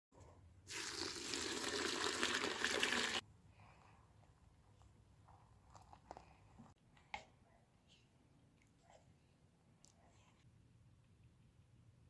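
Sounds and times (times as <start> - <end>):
water pouring into bucket: 0.7 - 3.2.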